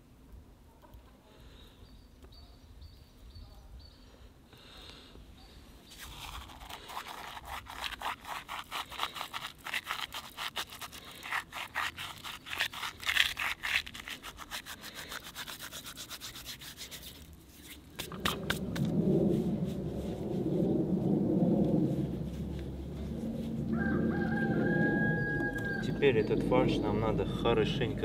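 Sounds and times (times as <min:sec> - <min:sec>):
seeds rustling between fingers: 0:05.7 - 0:23.7
low rumble: 0:18.1 - 0:28.0.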